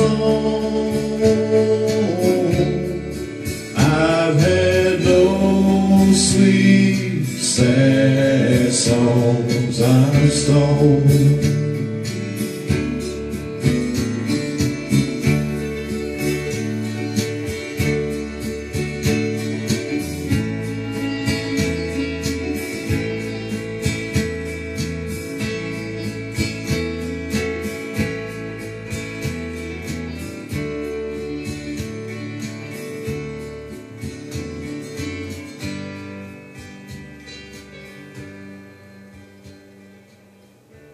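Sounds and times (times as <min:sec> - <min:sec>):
guitar bass and beat: 0:00.0 - 0:40.9.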